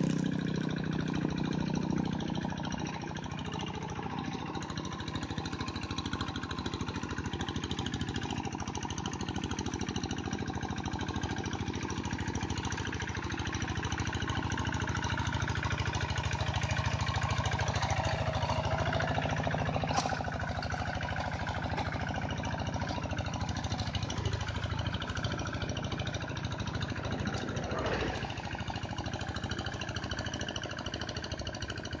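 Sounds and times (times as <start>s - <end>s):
walking tractor diesel engine: 0.0s - 32.0s.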